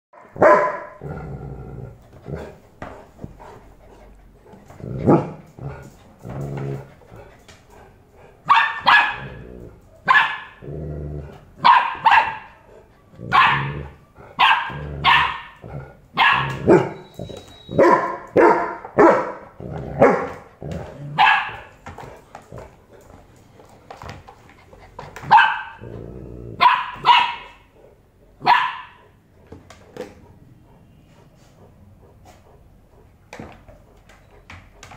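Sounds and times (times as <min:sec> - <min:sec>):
dogs barking: 0:00.2 - 0:01.0, 0:08.5 - 0:09.4, 0:10.0 - 0:10.6, 0:11.6 - 0:12.6, 0:13.3 - 0:15.6, 0:16.2 - 0:17.0, 0:17.8 - 0:20.5, 0:21.2 - 0:21.7, 0:25.2 - 0:25.8, 0:26.6 - 0:27.7, 0:28.4 - 0:29.1
dogs growling: 0:00.9 - 0:08.5, 0:09.2 - 0:11.6, 0:12.6 - 0:17.7, 0:19.4 - 0:21.3, 0:24.6 - 0:26.7.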